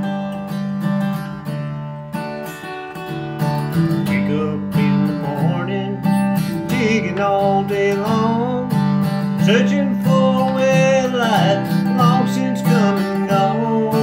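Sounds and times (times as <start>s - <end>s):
strummed acoustic guitar: 0.0s - 14.0s
person singing: 3.8s - 14.0s.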